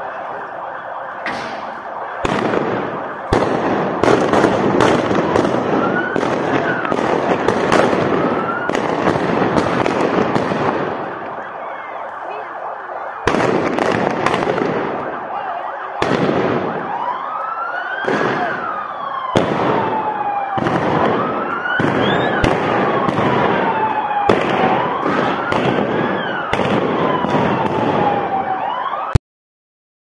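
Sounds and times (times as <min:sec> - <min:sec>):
siren wailing: 0:00.0 - 0:29.2
gunshots: 0:01.2 - 0:11.3, 0:13.1 - 0:16.8, 0:18.0 - 0:28.1.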